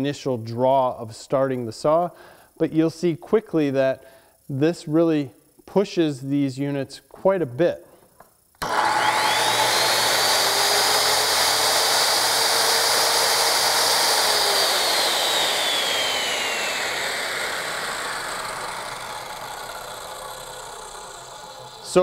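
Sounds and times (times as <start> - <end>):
circular saw motor whine: 8.6 - 22.0.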